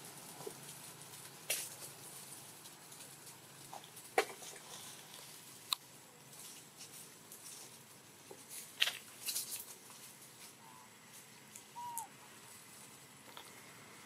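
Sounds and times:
soft clicks and rustles: 0:00.0 - 0:13.6
faint chirps: 0:10.6 - 0:12.5.

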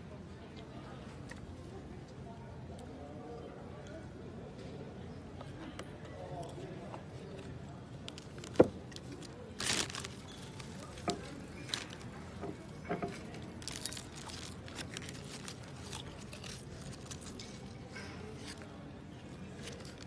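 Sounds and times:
crunching and crinkling of chips: 0:07.4 - 0:20.0.

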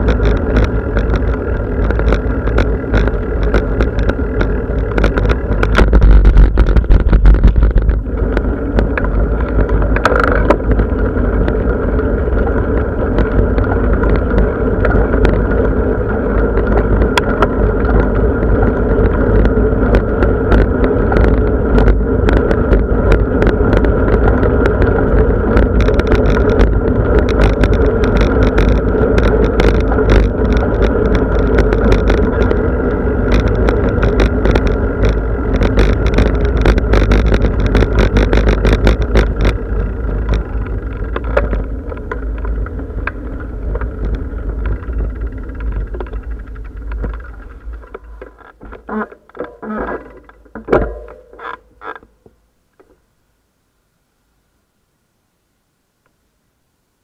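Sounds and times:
wind rumble on microphone: 0:00.0 - 0:51.9
bicycle rattles and clicks: 0:00.0 - 0:53.0
bicycle tyre road noise: 0:00.0 - 0:57.0.

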